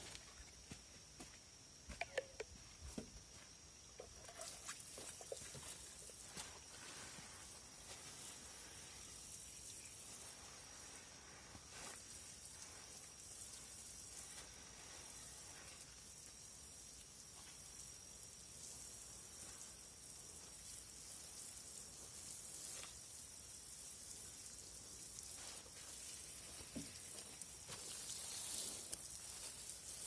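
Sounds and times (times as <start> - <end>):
soft high hiss: 0.0 - 30.0.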